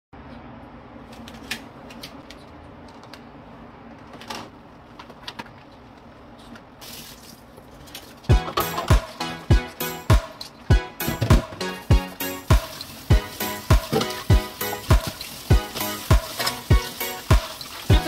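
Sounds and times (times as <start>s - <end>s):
music with thumping bass beat: 8.3s - 18.0s
rubber gloves rustling: 11.8s - 18.0s.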